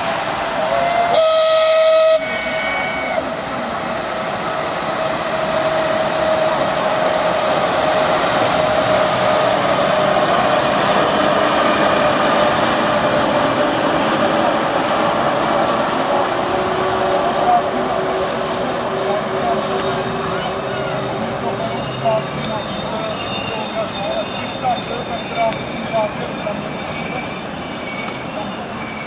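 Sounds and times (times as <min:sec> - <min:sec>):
traction equipment whine: 0:00.0 - 0:29.0
train running noise: 0:00.0 - 0:29.0
multi-tone signal whistle: 0:01.1 - 0:03.2.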